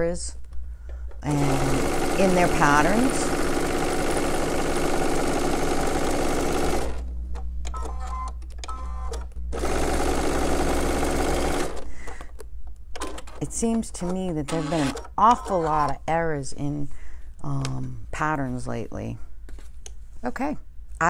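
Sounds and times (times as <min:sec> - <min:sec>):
sewing machine stitching: 0:01.3 - 0:07.0, 0:09.6 - 0:11.8, 0:13.0 - 0:16.0.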